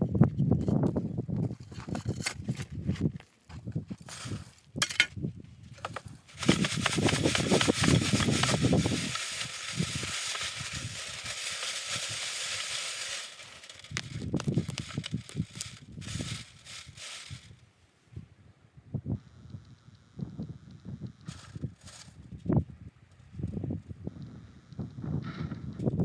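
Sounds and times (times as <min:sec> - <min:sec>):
gravel rattling across wire mesh: 0:05.7 - 0:17.6, 0:21.3 - 0:22.6.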